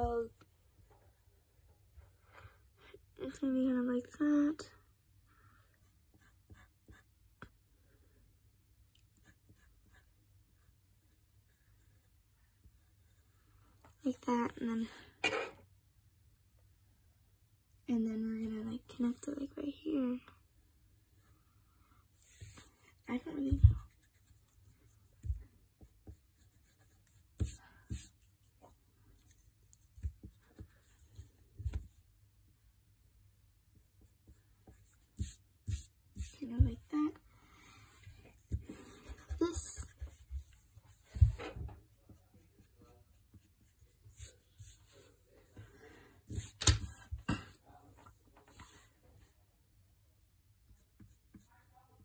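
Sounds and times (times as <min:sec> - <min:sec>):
pencil drawing on paper: 0:05.8 - 0:07.2, 0:09.1 - 0:13.4, 0:22.2 - 0:32.0, 0:33.1 - 0:37.2, 0:37.9 - 0:47.0, 0:50.6 - 0:52.0.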